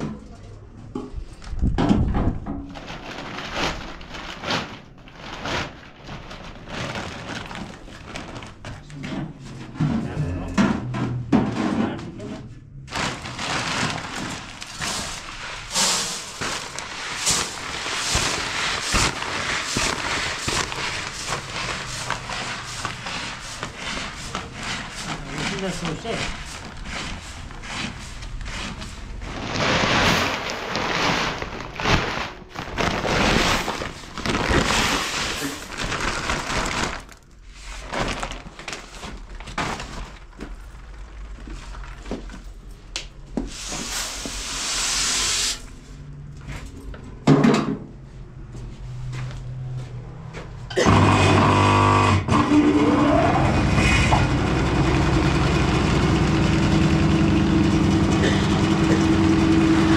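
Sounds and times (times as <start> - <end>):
rustling: 2.7 - 9.0, 12.9 - 42.5
vehicle engine starting and idling: 50.9 - 59.9.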